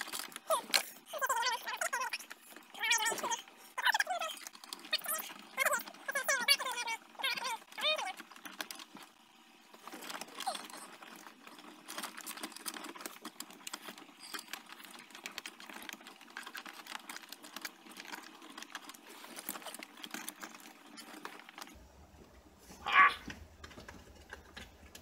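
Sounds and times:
hands rattling wiring in dashboard: 23.2s - 25.0s.

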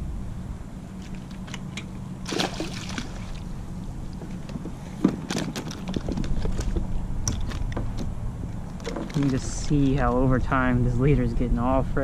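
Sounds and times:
wind and water rumble: 0.0s - 12.0s
water splashing and dripping: 2.2s - 3.5s.

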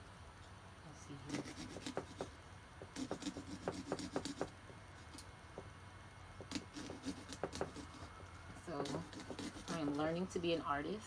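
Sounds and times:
saw rasping through pumpkin: 1.2s - 2.3s, 2.9s - 5.2s, 6.5s - 10.2s.

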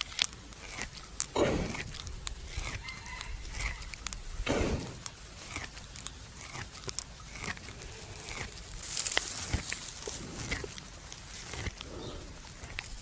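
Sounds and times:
buffalo chewing cud: 0.0s - 13.0s
distant rooster crowing: 2.8s - 4.0s.

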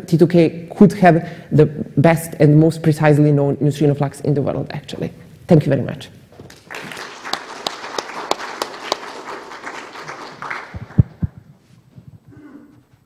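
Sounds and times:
audience applauding: 6.4s - 11.5s.

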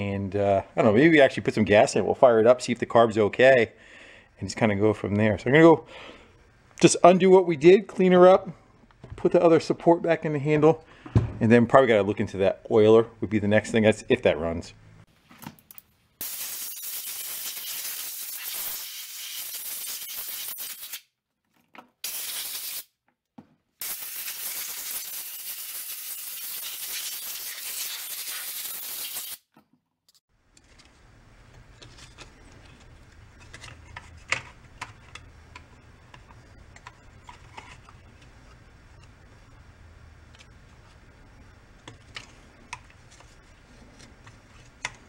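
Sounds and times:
compressed air blasts: 16.2s - 21.0s, 22.0s - 22.9s, 23.8s - 29.4s.

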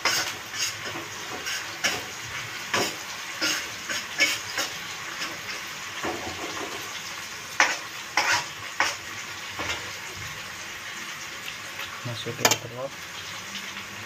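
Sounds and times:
spatula scraping a pan: 0.0s - 6.9s, 7.5s - 10.0s
oil sizzling in a wok: 0.0s - 14.0s.

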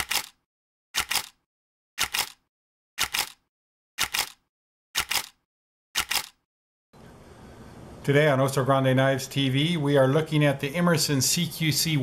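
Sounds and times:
camera shutter double click: 5.0s - 5.4s, 6.0s - 6.4s.

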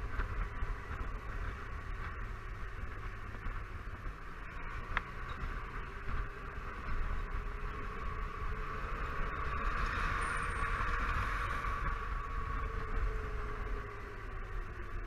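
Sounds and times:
wind and road noise: 0.0s - 15.0s
scooter engine hum: 5.4s - 15.0s.

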